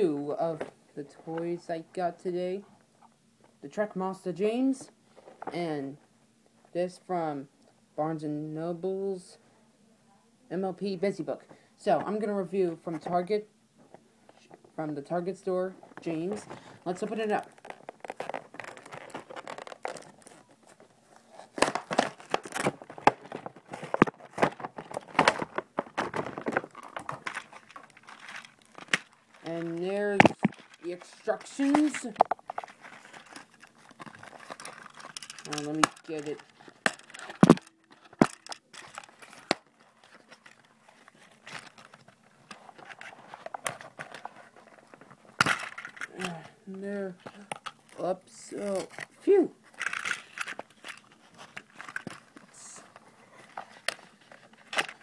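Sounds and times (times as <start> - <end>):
packaging crinkling and tearing: 17.1 - 46.4, 48.6 - 55.0.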